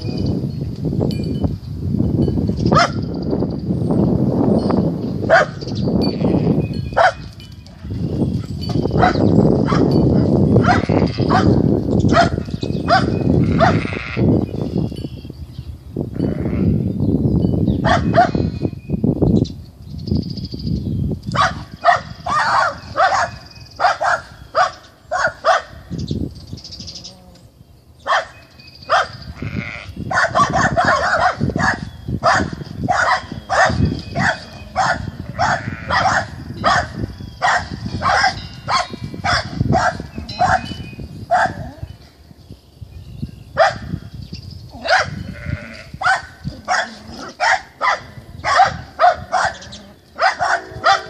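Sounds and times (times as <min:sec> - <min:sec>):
lambs bleating: 0:10.7 - 0:11.6, 0:13.4 - 0:14.3, 0:16.2 - 0:16.8, 0:29.4 - 0:30.0, 0:35.2 - 0:36.0, 0:45.2 - 0:46.0.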